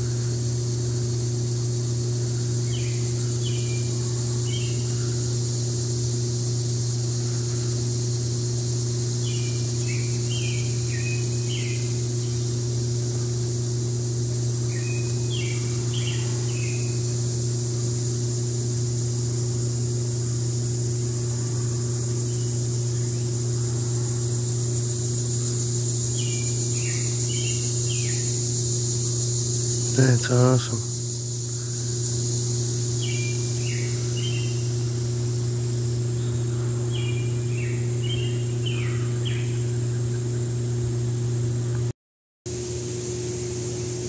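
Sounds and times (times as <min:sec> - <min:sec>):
high-pitched insect drone: 0:00.0 - 0:41.2, 0:42.5 - 0:44.0
loud low hum: 0:00.0 - 0:41.9, 0:42.5 - 0:44.0
songbird chirping: 0:14.7 - 0:17.0, 0:25.4 - 0:30.8, 0:32.9 - 0:34.7, 0:36.2 - 0:40.3.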